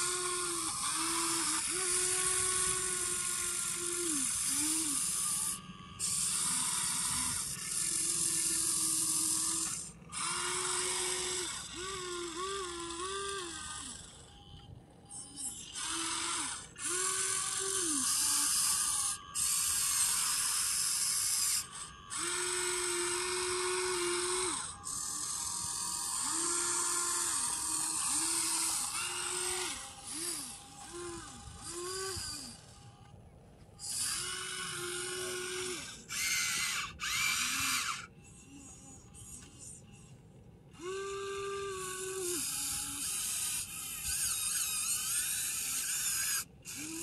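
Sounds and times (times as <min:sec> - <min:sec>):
toy electric motors whining: 0:00.0 - 0:47.0.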